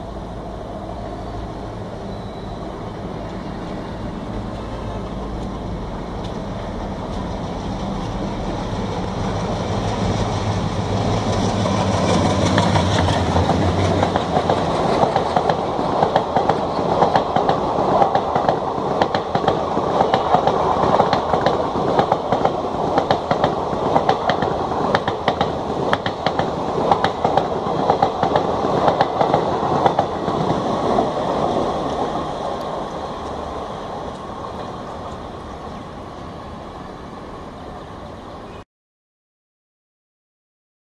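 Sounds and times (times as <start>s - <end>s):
diesel locomotive engine drone: 0.0s - 38.6s
rush of train coaches: 0.0s - 38.6s
wheels clacking over rail joints: 3.3s - 35.9s.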